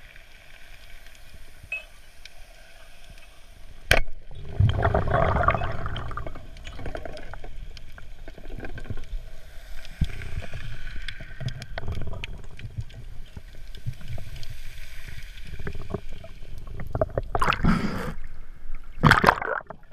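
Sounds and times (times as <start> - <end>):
underwater rumble: 2.8 - 19.9
water splashing: 4.2 - 19.9.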